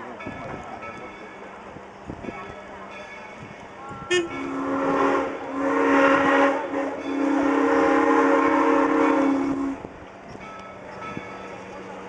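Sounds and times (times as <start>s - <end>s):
steam locomotive whistle: 4.1s - 9.9s.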